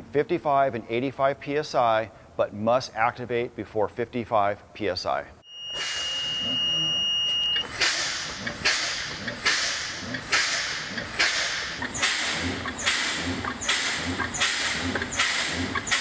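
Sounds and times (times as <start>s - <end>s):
high electronic beep: 5.4s - 7.7s
air brakes hissing: 5.7s - 6.6s.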